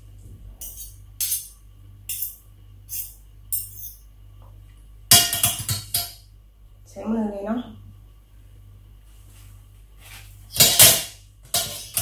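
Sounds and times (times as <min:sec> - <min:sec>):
metal cutlery scraping and clinking: 0:10.5 - 0:12.0.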